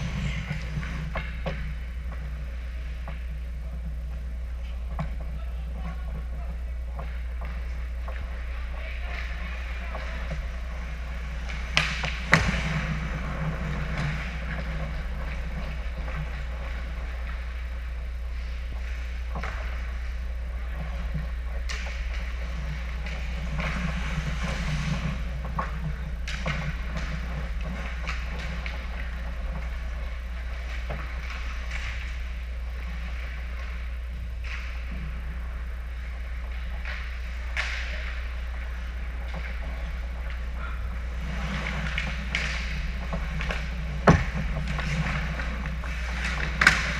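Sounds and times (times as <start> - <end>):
skates scraping on ice: 0.0 - 3.8, 4.6 - 46.9
hockey sticks and puck clacking: 0.0 - 46.9
steady low hum: 0.0 - 46.9
sharp cracks of stick or puck: 11.4 - 13.0, 36.8 - 38.3, 46.1 - 46.9.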